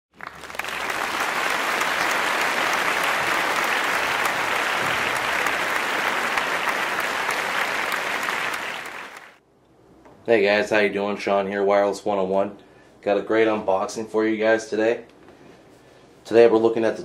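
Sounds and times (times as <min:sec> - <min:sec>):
crowd applauding: 0:00.1 - 0:09.4.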